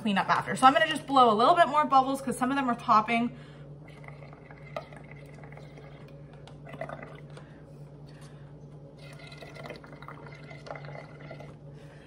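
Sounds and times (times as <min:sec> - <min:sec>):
air bubbling through a straw: 0:03.8 - 0:07.4, 0:09.0 - 0:11.6.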